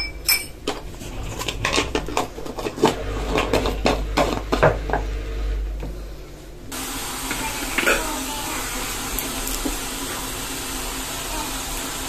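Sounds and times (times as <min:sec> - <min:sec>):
steady hiss: 0:05.1 - 0:12.0.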